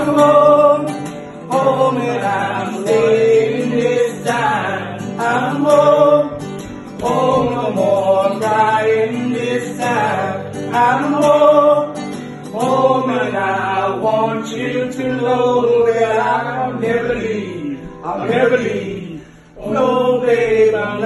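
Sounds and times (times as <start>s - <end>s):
acoustic guitar: 0.0s - 21.0s
man singing: 0.0s - 21.0s.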